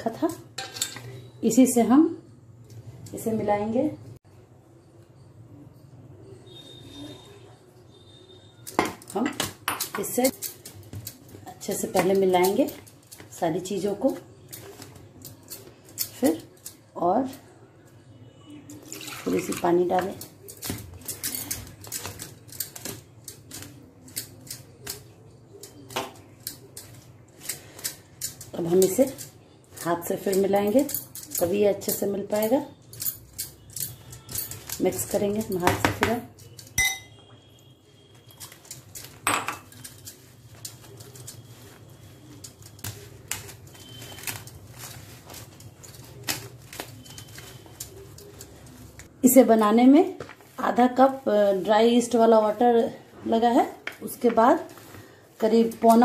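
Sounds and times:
hands rubbing flour: 39.8s - 52.7s, 54.1s - 56.0s.

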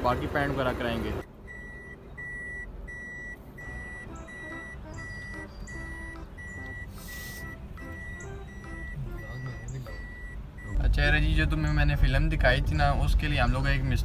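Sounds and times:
car warning chime beeping: 1.2s - 11.9s
quiet music: 3.2s - 14.0s
short hiss: 6.9s - 7.6s.

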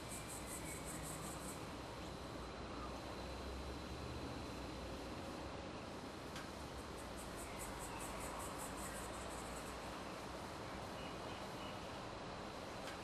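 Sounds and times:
cricket chirping: 0.0s - 4.8s, 6.8s - 11.9s
outdoor background hiss: 0.0s - 13.0s.

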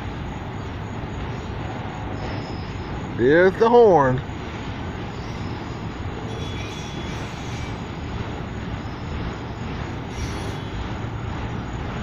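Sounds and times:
train wheels rumbling on rails: 0.0s - 12.0s
faint wheel squeal: 2.2s - 3.0s, 5.1s - 8.0s, 8.8s - 11.0s.

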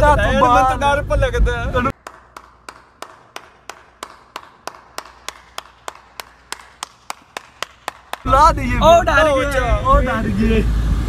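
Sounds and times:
person clapping slowly: 1.9s - 8.3s.

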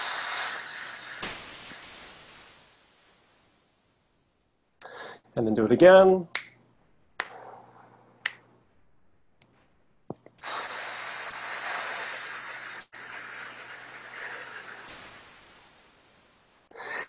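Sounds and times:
man exhaling through teeth: 0.0s - 2.9s, 10.4s - 17.0s.

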